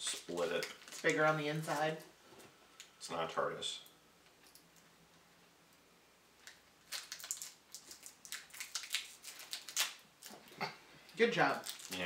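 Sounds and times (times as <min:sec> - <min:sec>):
plastic wrapper crinkling: 0:00.0 - 0:02.0, 0:06.4 - 0:10.4, 0:11.4 - 0:12.0.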